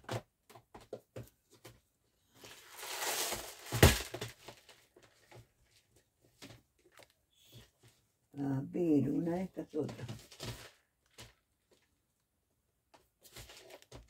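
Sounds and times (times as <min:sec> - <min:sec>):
craft materials rustling: 0:02.3 - 0:05.8.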